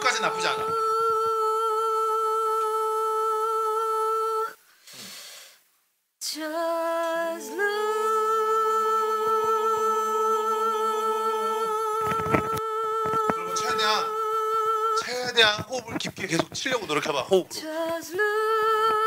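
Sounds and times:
woman singing sustained notes: 0.0 - 4.6, 6.2 - 15.2
singer breathing in: 4.7 - 5.7.

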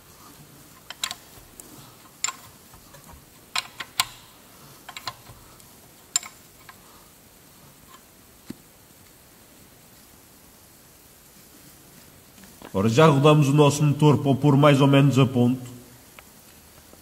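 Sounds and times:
spanner clicking on bolt: 0.8 - 6.8.

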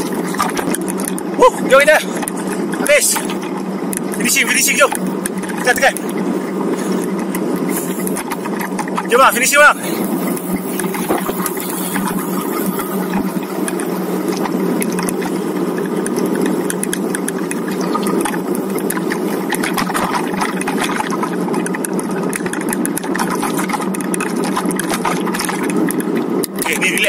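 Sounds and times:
wind and road noise: 0.0 - 27.0
small clicks: 10.0 - 27.0.

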